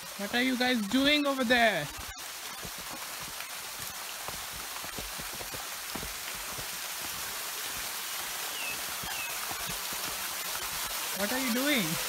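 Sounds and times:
waterfall splashing into pool: 0.0s - 12.0s.

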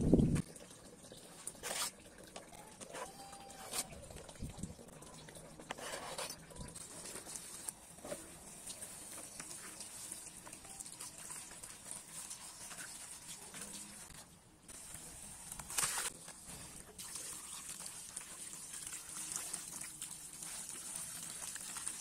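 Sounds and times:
tap water running and splashing: 0.0s - 22.0s.

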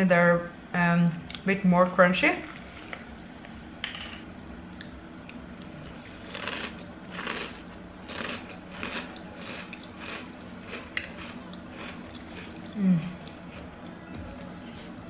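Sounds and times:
cereal crunching being chewed: 6.2s - 13.7s.

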